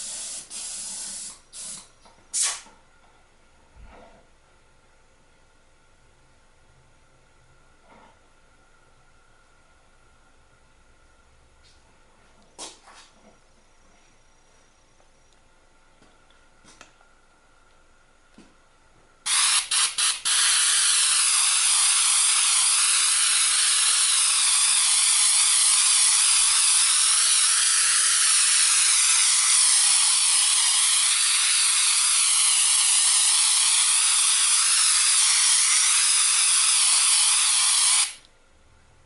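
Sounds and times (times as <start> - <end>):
airbrush hissing air: 0.0 - 2.6, 19.3 - 38.2.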